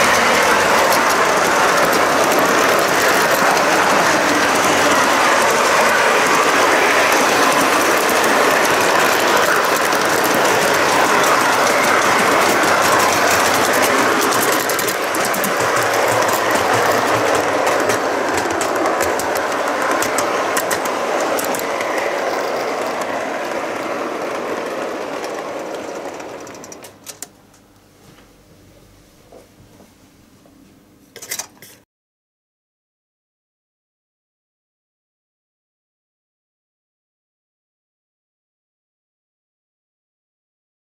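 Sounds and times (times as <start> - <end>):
model train wheels clattering: 0.0 - 27.3, 31.2 - 31.8.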